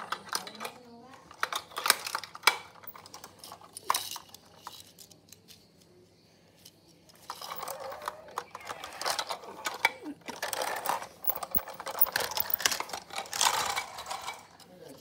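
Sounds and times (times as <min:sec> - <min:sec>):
toy truck rolling across tiles: 0:00.0 - 0:05.9, 0:06.6 - 0:15.0.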